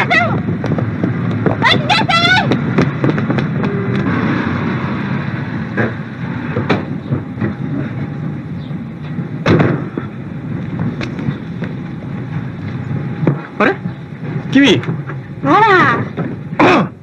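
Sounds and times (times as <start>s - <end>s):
street traffic: 0.0s - 17.0s
sharp knocks and clicks: 2.5s - 4.1s.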